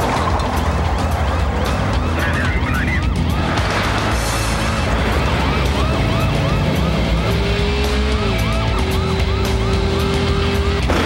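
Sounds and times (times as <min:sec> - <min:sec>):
car chase noise: 0:00.0 - 0:11.0
music: 0:00.0 - 0:11.0
police siren yelping: 0:01.8 - 0:03.6, 0:04.8 - 0:10.9.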